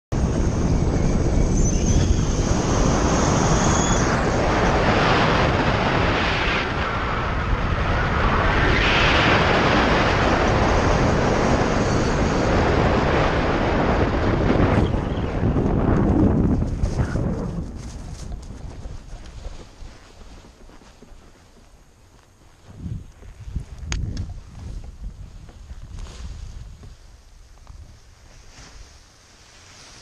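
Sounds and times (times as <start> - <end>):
wind buffeting microphone: 0.1 - 22.0, 22.6 - 30.0.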